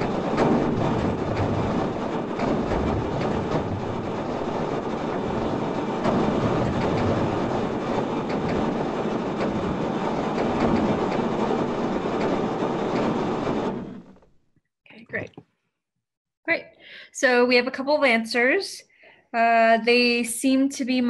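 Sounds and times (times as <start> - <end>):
rumble with crackles and pops: 0.0 - 15.5.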